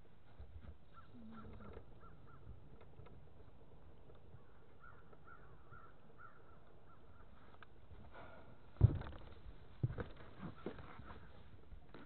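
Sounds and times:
faint bird calls: 0.8s - 8.6s.

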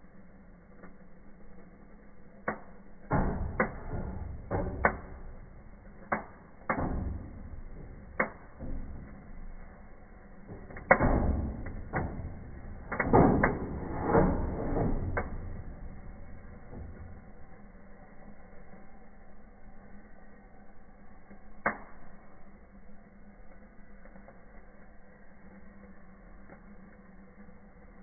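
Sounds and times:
firework fountain rushing: 0.0s - 28.0s
sharp firework cracks and bangs: 2.4s - 17.3s.

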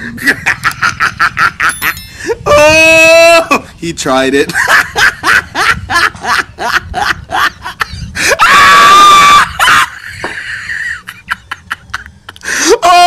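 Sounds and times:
person laughing: 0.0s - 3.7s, 4.5s - 13.0s
high-pitched scream: 8.3s - 10.0s.

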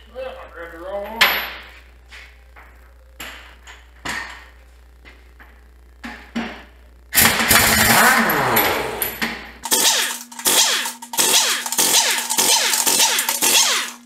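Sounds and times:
pneumatic impact wrench hammering: 7.2s - 14.0s.

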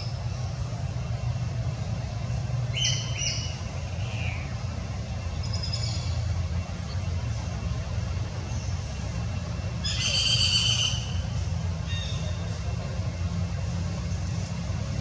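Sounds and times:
birds chirping: 2.7s - 13.1s
steady low rumble: 11.0s - 15.0s.

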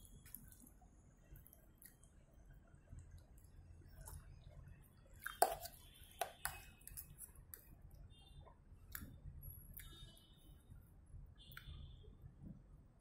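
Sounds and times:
wet chewing: 5.2s - 7.7s.

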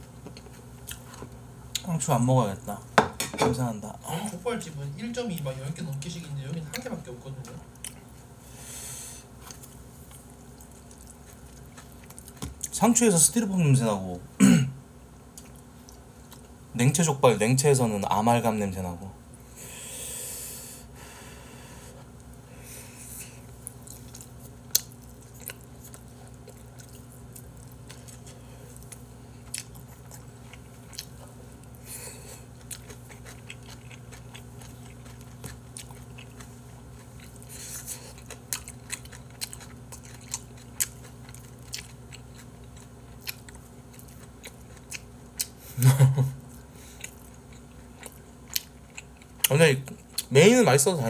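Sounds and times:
man chewing and biting food: 0.0s - 1.9s, 7.6s - 12.8s, 15.2s - 16.6s, 22.0s - 50.3s
faint low hum: 0.0s - 51.0s.

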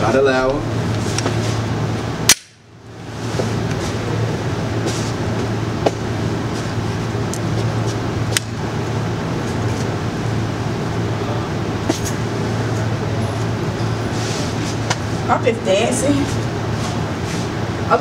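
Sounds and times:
steady low hum: 0.0s - 18.0s
pistol shots: 2.3s - 2.6s.

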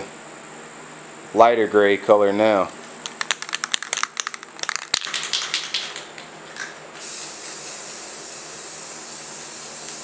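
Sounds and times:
spray can ball rattling: 3.0s - 8.0s
spray paint hissing: 7.0s - 10.0s.

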